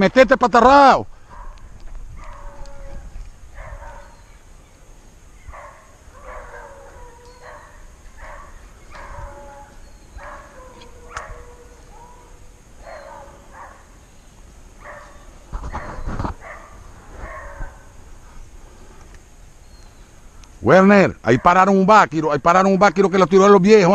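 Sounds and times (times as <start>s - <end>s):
hunting dogs baying: 1.2s - 4.4s, 5.4s - 14.0s, 14.8s - 18.4s.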